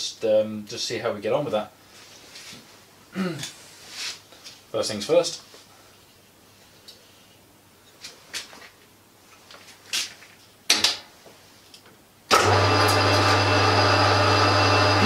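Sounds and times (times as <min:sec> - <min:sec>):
metal lathe motor humming: 0:12.3 - 0:15.0.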